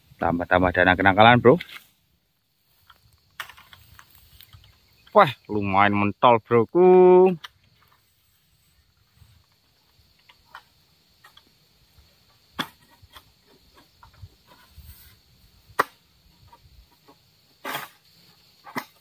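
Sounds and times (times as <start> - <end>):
faint ticks and scrapes: 1.0 - 5.2, 7.4 - 15.4, 16.2 - 19.0.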